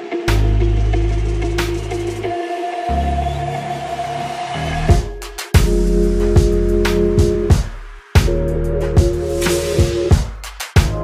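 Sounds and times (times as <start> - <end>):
background music with deep bass: 0.0 - 11.0
drum hits: 4.9 - 8.4, 9.0 - 11.0.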